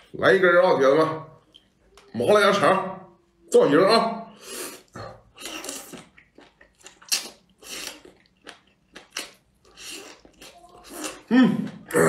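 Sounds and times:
person slurping food: 4.4s - 6.1s, 7.0s - 8.3s, 9.2s - 12.0s.

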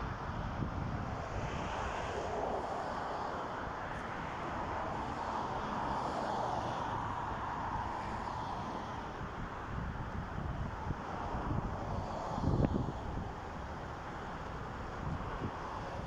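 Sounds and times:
wind buffeting microphone: 0.0s - 5.6s, 9.2s - 16.0s
road traffic rushing: 0.0s - 16.0s.

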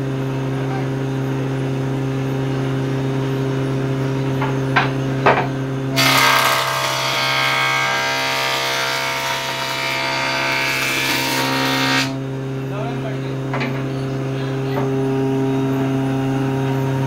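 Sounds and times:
electric planer humming: 6.0s - 12.2s
planer cutting wood: 6.0s - 12.2s.

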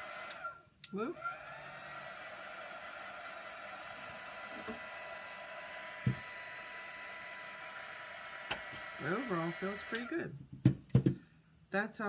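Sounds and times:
heat gun blowing with motor whine: 0.0s - 10.3s
dull knock: 6.0s - 6.2s, 10.5s - 11.2s.

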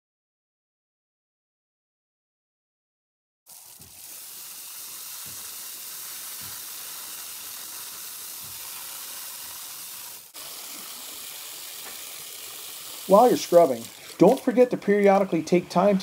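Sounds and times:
hose water spraying on pool floor: 3.5s - 16.0s.

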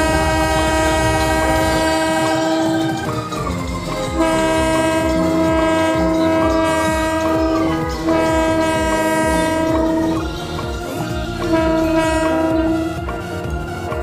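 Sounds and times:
train horn blasts: 0.0s - 3.2s, 3.9s - 10.2s, 11.4s - 13.0s
low pulsing: 0.0s - 14.0s.

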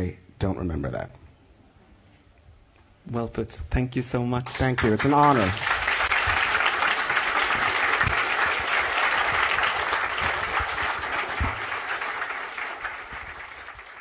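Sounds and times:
audience applauding: 4.8s - 14.0s.

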